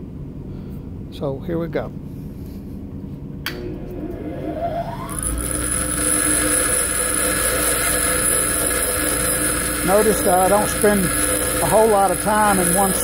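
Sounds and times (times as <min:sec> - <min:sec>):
bench grinder motor whine: 0:03.6 - 0:13.0.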